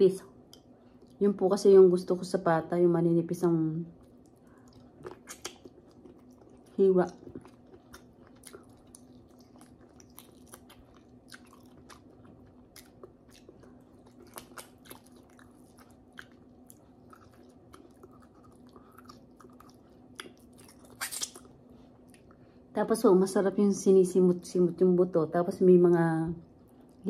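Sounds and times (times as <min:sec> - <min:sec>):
faint steady hum: 0:00.0 - 0:27.0
person chewing: 0:04.0 - 0:22.6, 0:26.4 - 0:27.0.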